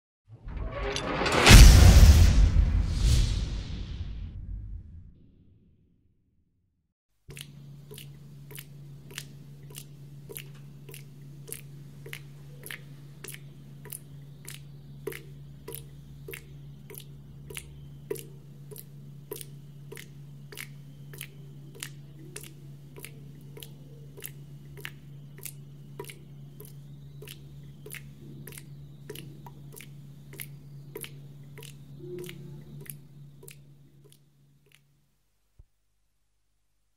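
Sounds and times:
low hum: 0:00.3 - 0:05.9
water dripping: 0:07.3 - 0:34.9.

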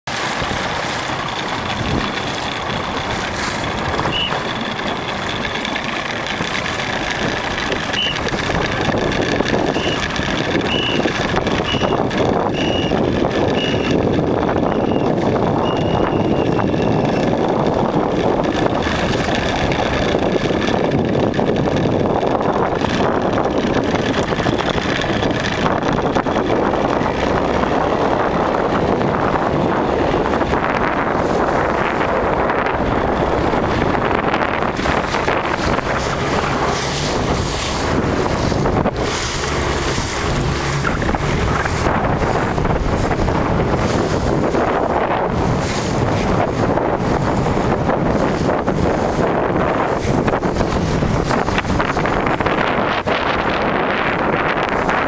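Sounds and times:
wind rushing on microphone: 0:00.0 - 0:55.0
short electronic beeps: 0:04.0 - 0:04.4, 0:07.9 - 0:08.2, 0:11.6 - 0:12.9, 0:13.5 - 0:14.0, 0:14.7 - 0:17.2.

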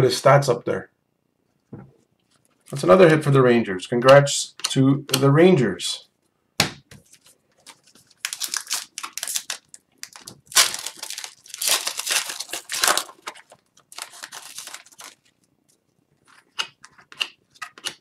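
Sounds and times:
foil wrapper crinkling: 0:07.1 - 0:15.8
foil tearing: 0:07.7 - 0:15.3.

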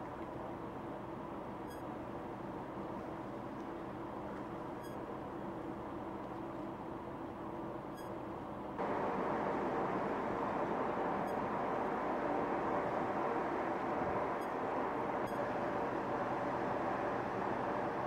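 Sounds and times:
ship machinery hum: 0:00.0 - 0:18.0
water and wind rushing along hull: 0:00.0 - 0:18.0
constant hiss: 0:08.7 - 0:18.0.

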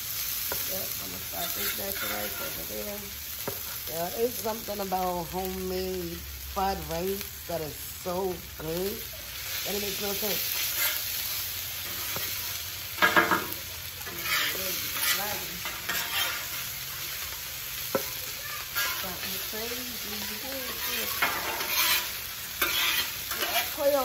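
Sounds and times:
rice sizzling in a pan: 0:00.0 - 0:24.0
utensil scraping a pan: 0:01.1 - 0:02.9, 0:09.5 - 0:17.0, 0:17.9 - 0:24.0.

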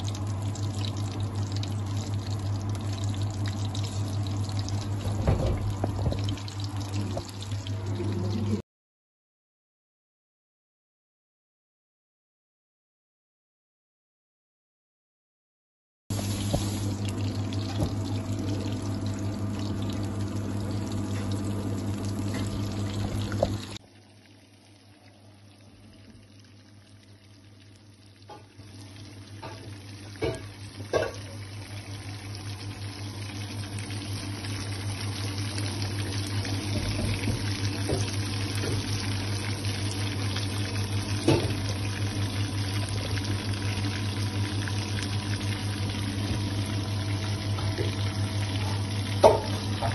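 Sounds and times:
fish deep-frying in oil: 0:00.0 - 0:08.6, 0:16.1 - 0:49.9
oil popping: 0:16.1 - 0:23.8, 0:29.3 - 0:31.9, 0:49.2 - 0:49.9.

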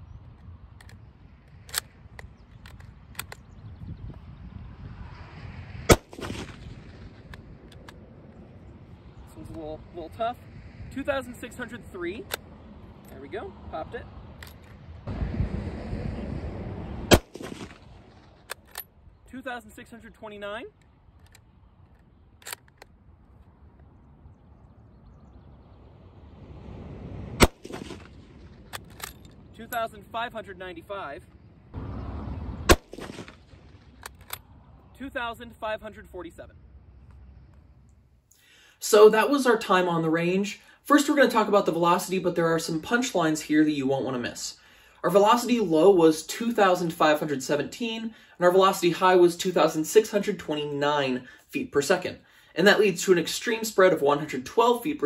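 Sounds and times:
low rumble: 0:00.0 - 0:19.3, 0:20.8 - 0:38.2
rifle bolt action clicks: 0:00.8 - 0:03.5, 0:18.4 - 0:18.9, 0:20.8 - 0:23.0, 0:28.7 - 0:29.3, 0:33.9 - 0:34.4.

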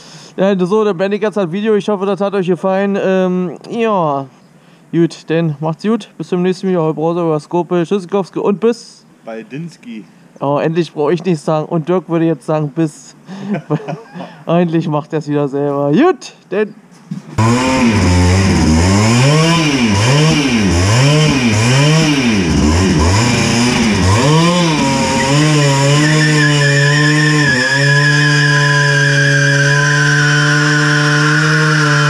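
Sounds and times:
two-stroke engine revving: 0:17.4 - 0:32.0.

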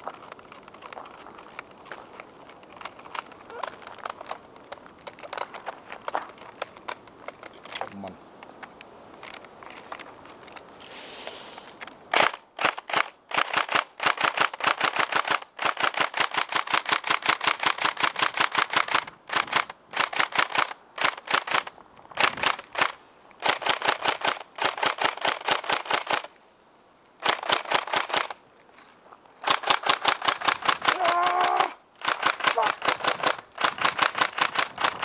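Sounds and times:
airsoft rifle firing bursts: 0:12.1 - 0:26.3, 0:27.2 - 0:28.4, 0:29.4 - 0:31.1, 0:32.0 - 0:35.0.

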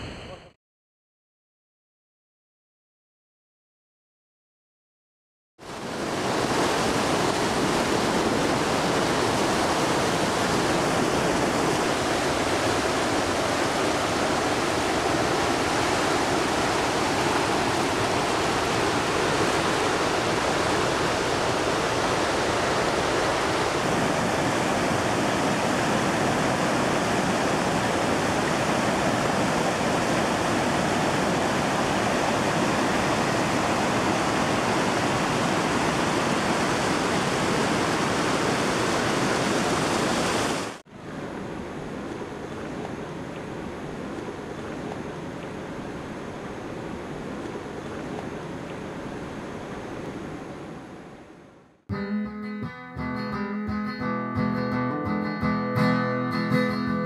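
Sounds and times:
whitewater rushing: 0:05.6 - 0:51.0.

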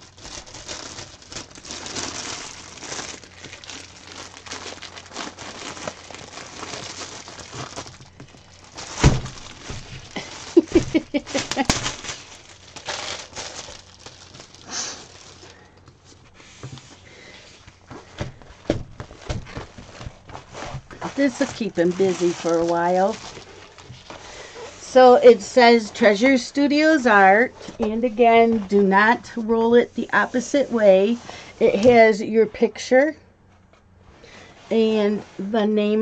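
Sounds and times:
plastic sleeve crinkling: 0:00.0 - 0:31.9.

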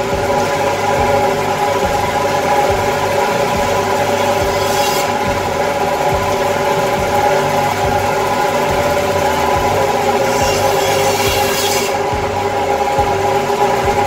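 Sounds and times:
bandsaw humming and whining: 0:00.0 - 0:14.0
blade hiss: 0:04.1 - 0:05.4, 0:10.2 - 0:12.2.

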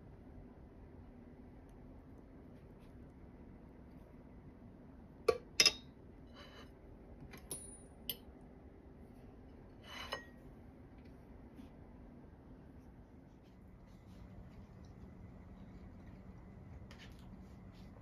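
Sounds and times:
cutlery scraping plate: 0:09.8 - 0:10.3.

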